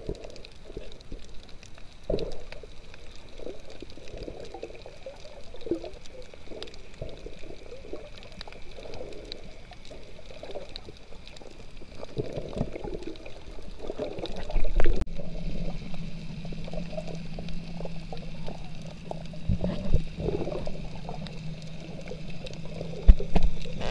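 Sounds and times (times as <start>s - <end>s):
underwater sloshing and gurgles: 0.0s - 23.9s
steady low hum: 15.0s - 23.9s.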